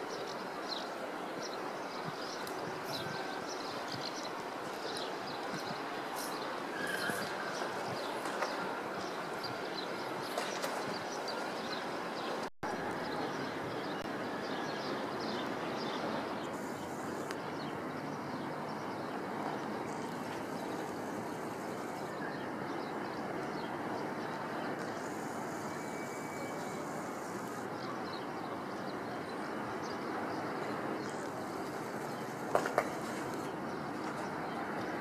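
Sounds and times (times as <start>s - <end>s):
distant traffic: 0.0s - 35.0s
wind: 0.0s - 35.0s
faint high hiss: 16.4s - 17.7s, 24.8s - 28.0s.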